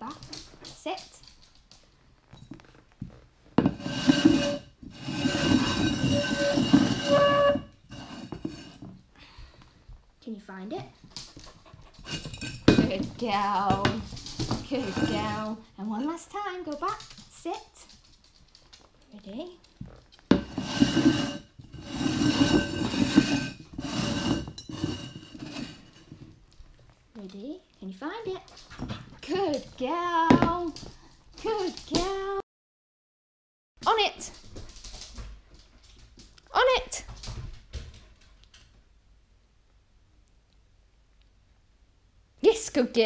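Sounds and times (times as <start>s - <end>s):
pots scraping on wooden floor: 2.3s - 9.0s, 11.2s - 18.9s, 19.6s - 26.9s.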